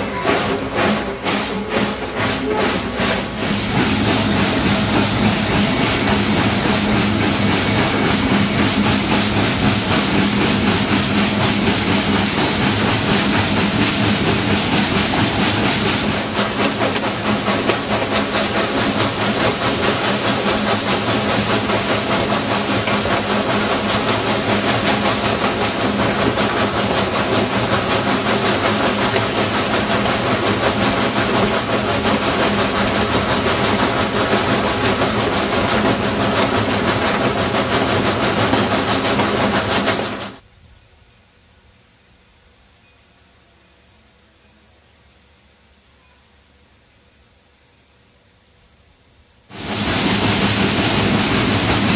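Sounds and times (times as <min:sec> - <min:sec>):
steam locomotive wheels clattering: 0:00.0 - 0:40.4, 0:49.5 - 0:51.9
pulsing insect trill: 0:03.8 - 0:16.2, 0:40.4 - 0:49.5.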